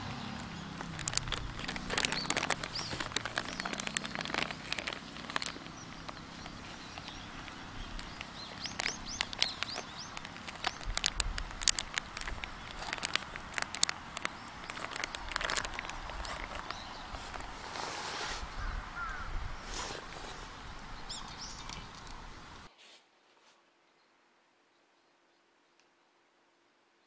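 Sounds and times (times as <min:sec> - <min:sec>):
bird chirps: 0:00.0 - 0:11.1, 0:18.4 - 0:22.6
plastic bag crinkling: 0:00.3 - 0:19.2.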